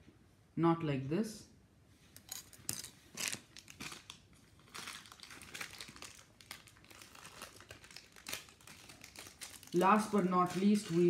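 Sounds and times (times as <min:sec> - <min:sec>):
packaging wrap crinkling: 0:02.2 - 0:11.0.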